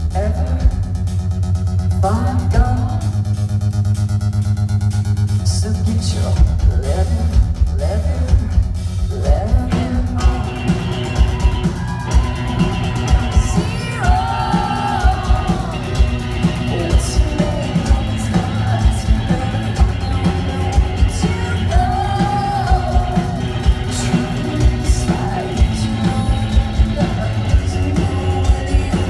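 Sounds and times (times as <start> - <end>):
live rock band: 0.0 - 29.0
steady drum beat: 0.0 - 29.0
woman singing: 13.2 - 29.0.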